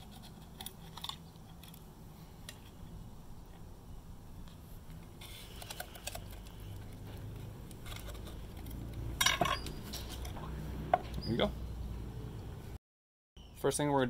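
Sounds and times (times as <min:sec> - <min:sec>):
knife scraping clam shell: 0:00.0 - 0:01.8.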